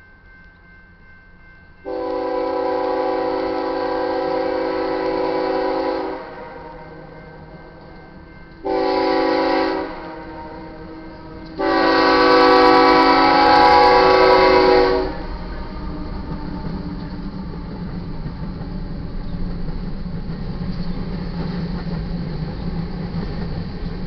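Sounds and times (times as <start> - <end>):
locomotive air horn blasts: 1.8 - 7.0, 8.6 - 15.4.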